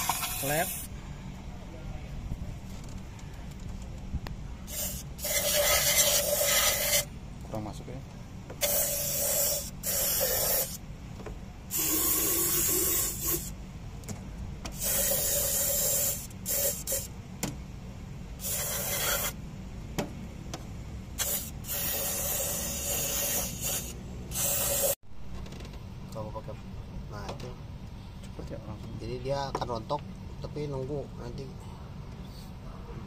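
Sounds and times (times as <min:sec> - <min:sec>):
aerosol spray hissing bursts: 0:04.7 - 0:07.1, 0:08.6 - 0:10.8, 0:11.7 - 0:13.5, 0:14.7 - 0:17.1, 0:18.4 - 0:19.4, 0:21.2 - 0:25.0.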